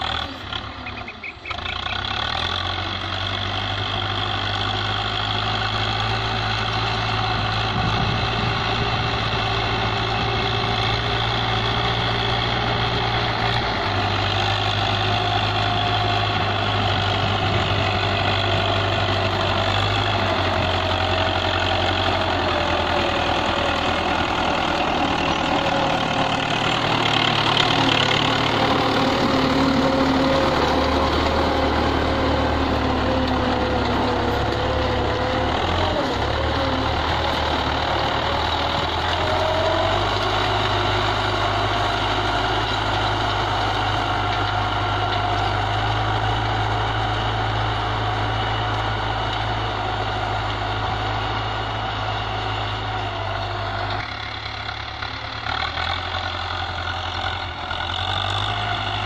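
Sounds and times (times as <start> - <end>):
tractor diesel engine under load: 0.0 - 59.0.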